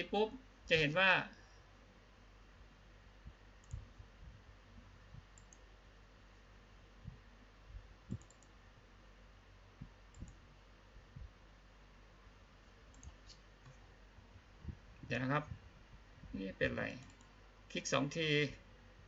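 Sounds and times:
faint mouse clicks: 3.6s - 3.9s, 5.3s - 5.7s, 8.1s - 8.6s, 10.1s - 10.4s, 12.9s - 13.8s.

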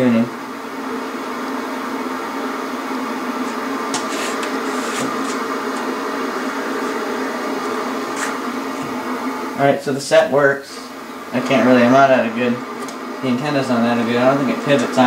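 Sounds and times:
television static hiss: 0.0s - 15.0s.

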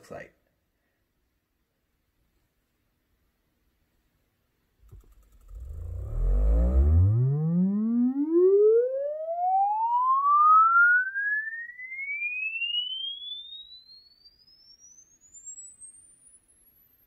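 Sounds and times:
rising sine tone sweep: 4.9s - 17.0s.

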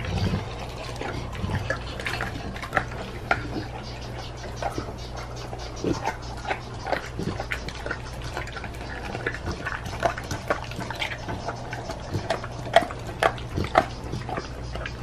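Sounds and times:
dog licking and chewing: 0.0s - 15.0s.

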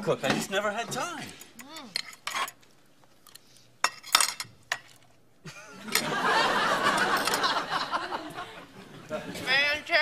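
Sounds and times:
cutlery clinking on china: 3.8s - 5.0s
audience laughing: 5.7s - 9.5s.

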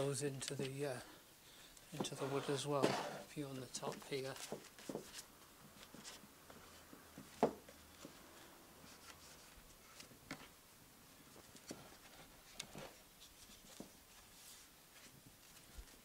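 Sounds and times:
cloth rubbing wood: 2.0s - 3.3s.

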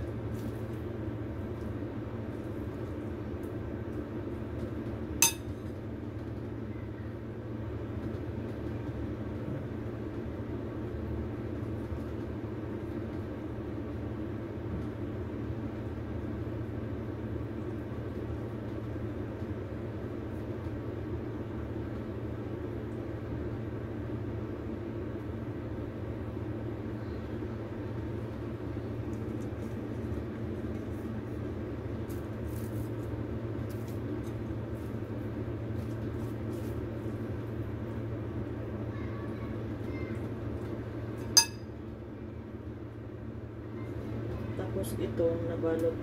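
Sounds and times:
low background hum: 0.0s - 46.0s
metal spoon clinking on bowl: 5.2s - 5.6s, 41.4s - 41.6s.

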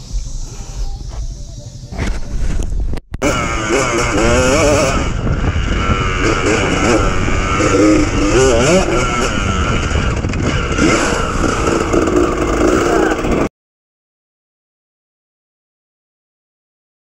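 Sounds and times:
dirt bike engine revving: 3.2s - 13.5s.

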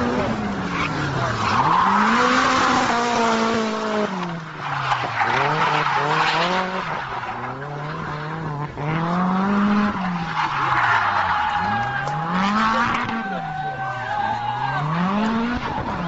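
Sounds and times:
car engine revving: 0.0s - 16.0s
tyres squealing: 10.0s - 15.1s.

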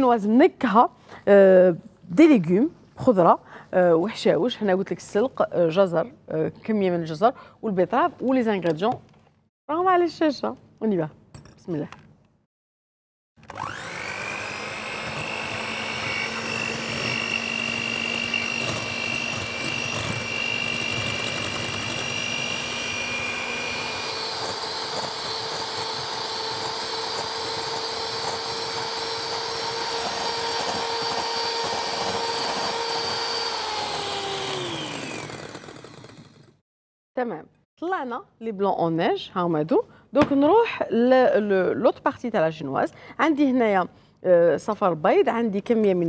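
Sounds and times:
electric hand mixer whine: 13.4s - 36.6s.

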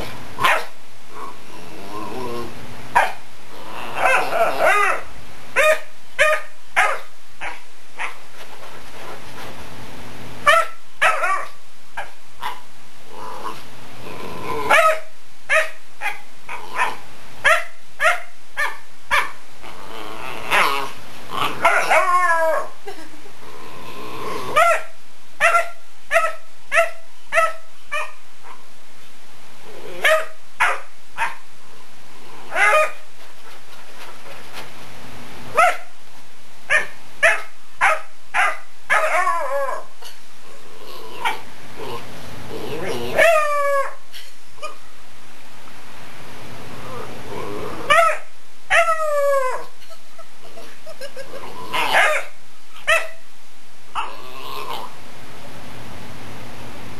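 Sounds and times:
steady hiss: 0.0s - 39.0s, 39.7s - 43.3s, 43.9s - 48.8s, 49.5s - 56.9s
puppy barking: 0.4s - 0.8s, 3.0s - 3.2s, 4.0s - 8.2s, 10.4s - 12.6s, 14.7s - 19.4s, 21.4s - 22.1s, 24.5s - 28.6s, 30.0s - 31.4s, 32.5s - 33.0s, 35.5s - 35.9s, 36.7s - 39.8s, 43.1s - 44.0s, 47.9s - 49.0s, 51.8s - 53.2s
puppy barking and howling: 3.9s - 8.1s, 20.5s - 22.8s, 36.7s - 39.9s, 42.8s - 44.0s, 47.8s - 49.8s, 51.6s - 53.2s.

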